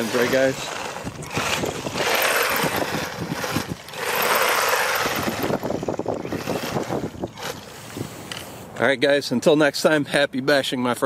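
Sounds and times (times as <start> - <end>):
rc truck driving on wet asphalt: 0.0 - 8.7.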